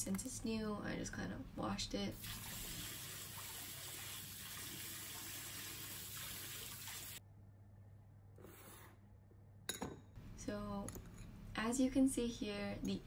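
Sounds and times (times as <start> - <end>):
tap water running into sink: 2.2 - 7.2.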